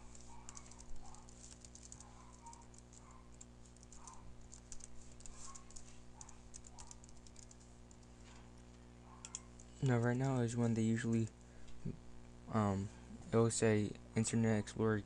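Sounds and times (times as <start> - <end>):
keyboard typing: 0.0 - 8.3, 9.2 - 10.1.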